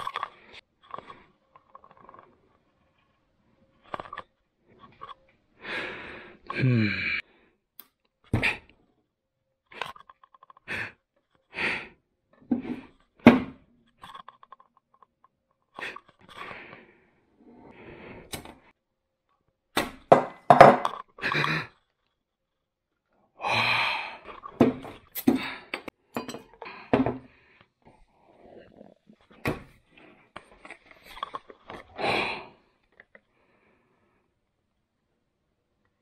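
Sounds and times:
objects knocking on wooden desk: 0:20.1 - 0:20.9.

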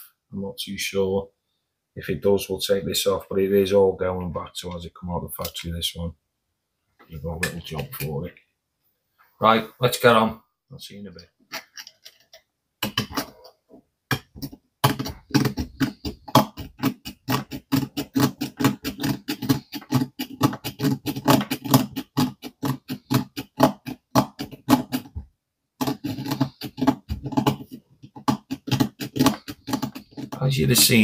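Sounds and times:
hand file rasping on metal: 0:14.8 - 0:25.2, 0:25.8 - 0:31.0.

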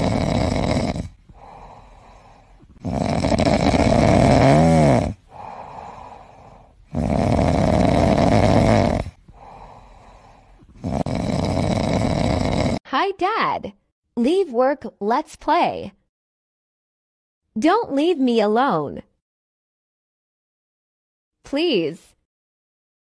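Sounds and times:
kitten snoring: 0:00.0 - 0:12.8.

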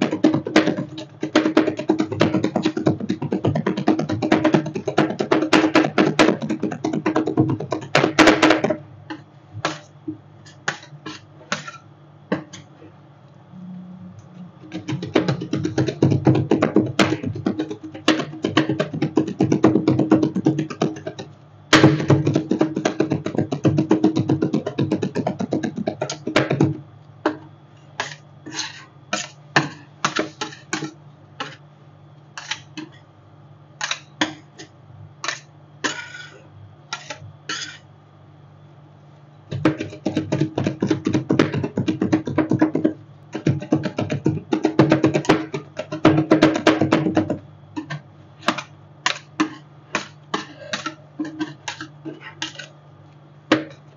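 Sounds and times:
steady low hum: 0:00.0 - 0:53.9
spatulas tapping on cold plate: 0:28.0 - 0:31.6, 0:32.4 - 0:33.0, 0:33.8 - 0:37.8, 0:39.5 - 0:52.7.

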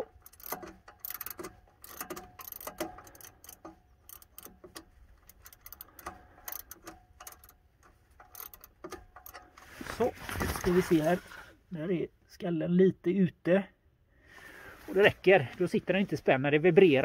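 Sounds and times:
ratchet wrench clicking: 0:00.0 - 0:09.6.

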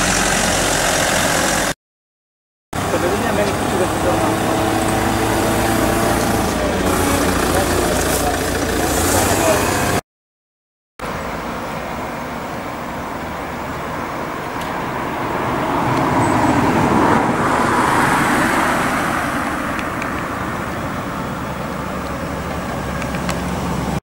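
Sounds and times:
vehicle passing: 0:02.8 - 0:10.0, 0:13.5 - 0:24.0.

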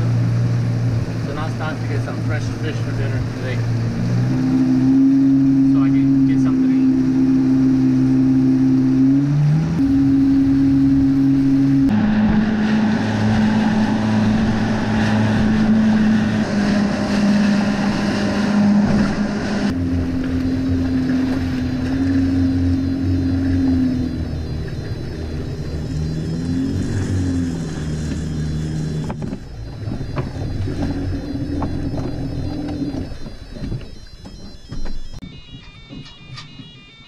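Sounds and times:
rushing water: 0:00.0 - 0:09.2
motorboat engine drone: 0:00.0 - 0:37.0
wind: 0:00.0 - 0:37.0.

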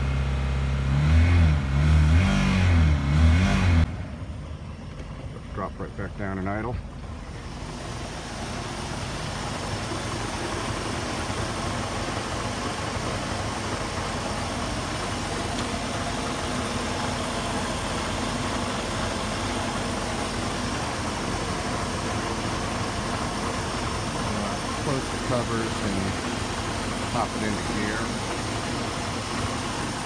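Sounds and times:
boat inboard engines idling: 0:04.0 - 0:30.0.

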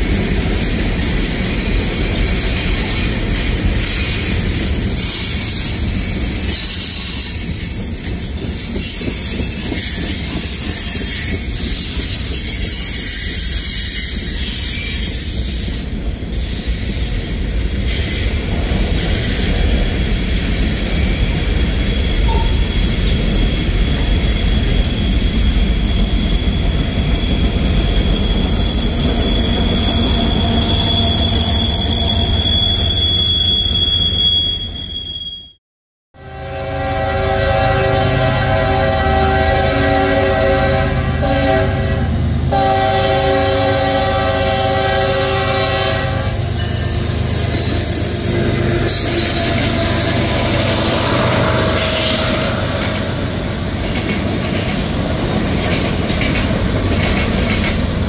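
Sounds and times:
train wheels rumbling on rail: 0:00.0 - 0:34.7, 0:36.9 - 0:58.0
high wheel squeal: 0:00.5 - 0:35.6, 0:43.9 - 0:53.9.

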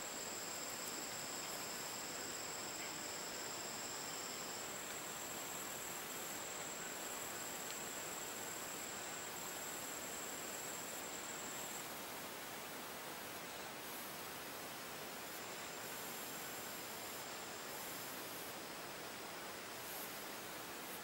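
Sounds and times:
constant hiss: 0:00.0 - 0:21.0
lower insect tone: 0:00.0 - 0:21.0
high-pitched insect trill: 0:00.1 - 0:11.9.

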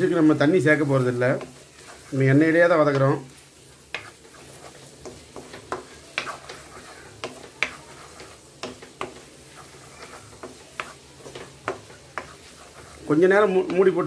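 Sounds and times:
oil sizzling: 0:00.0 - 0:14.0
spatula scraping metal pan: 0:00.0 - 0:14.0.

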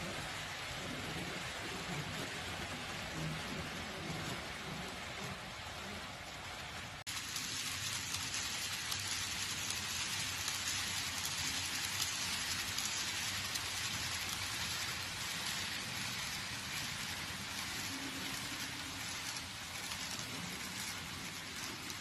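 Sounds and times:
model trains rushing hiss: 0:00.0 - 0:22.0.

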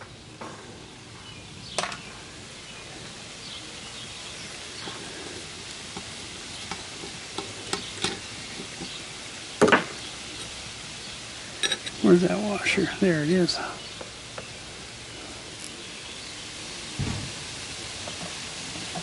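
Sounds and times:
small metal parts clicking and scraping: 0:11.6 - 0:12.0.

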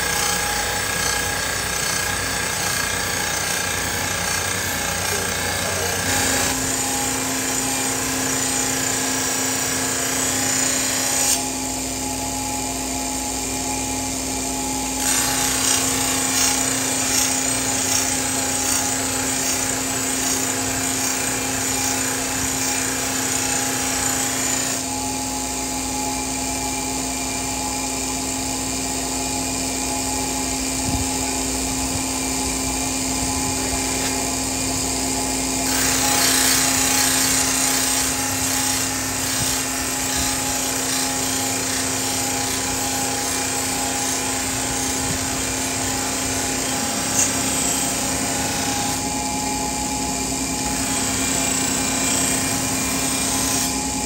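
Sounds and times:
grinding wheel humming: 0:00.0 - 0:11.4.

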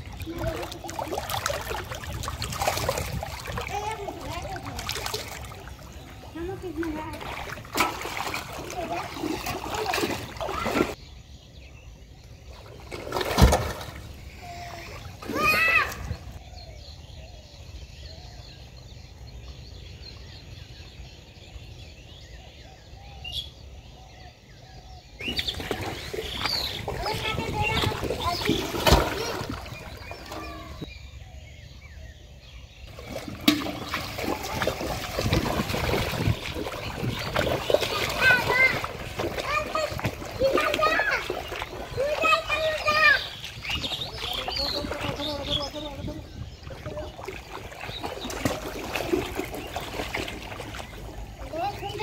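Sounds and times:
heavy splash: 0:00.0 - 0:11.0, 0:12.8 - 0:14.2, 0:25.3 - 0:30.8, 0:32.9 - 0:52.0
muddy water splashing: 0:00.0 - 0:11.0, 0:12.4 - 0:16.5, 0:25.2 - 0:30.9, 0:32.8 - 0:52.0.

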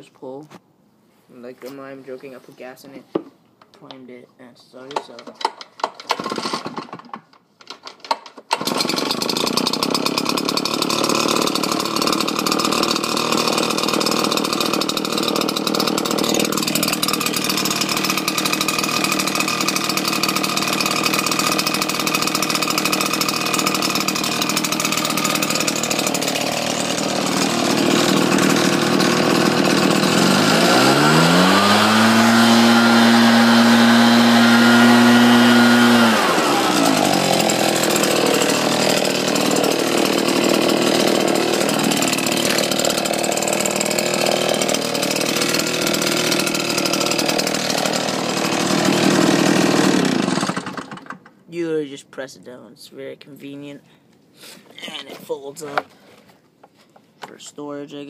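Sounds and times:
leaf blower engine running: 0:05.2 - 0:07.2, 0:08.5 - 0:51.3.

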